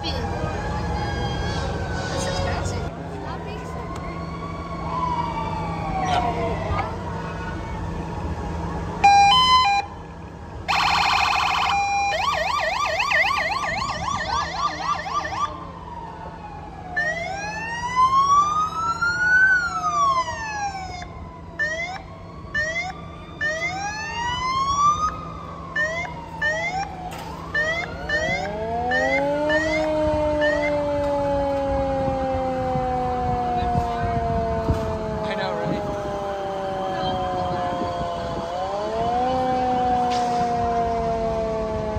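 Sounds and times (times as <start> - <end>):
fire truck sirens wailing: 0.0 - 41.9
low siren winding up: 10.7 - 41.9.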